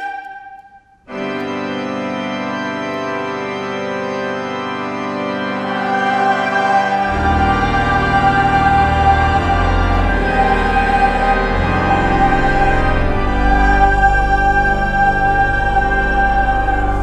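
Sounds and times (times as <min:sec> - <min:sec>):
pipe organ chord: 0:00.0 - 0:17.0
deep organ pedal note: 0:01.1 - 0:17.0.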